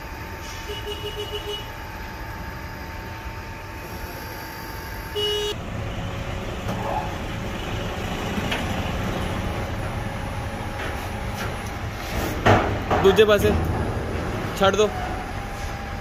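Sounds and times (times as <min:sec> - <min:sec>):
short pitched tone: 0:00.4 - 0:05.6
grinder machine hum: 0:01.0 - 0:05.5.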